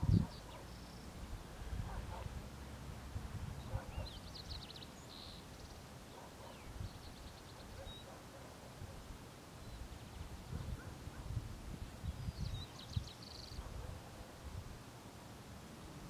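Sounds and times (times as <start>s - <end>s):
small birds chirping: 0.0s - 1.3s, 3.6s - 8.5s, 9.6s - 11.2s, 11.8s - 13.9s.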